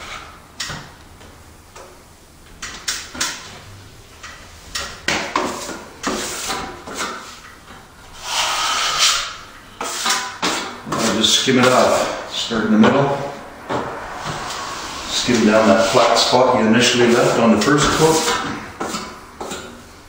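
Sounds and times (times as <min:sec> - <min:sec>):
trowel scraping joint compound: 0:08.2 - 0:12.2.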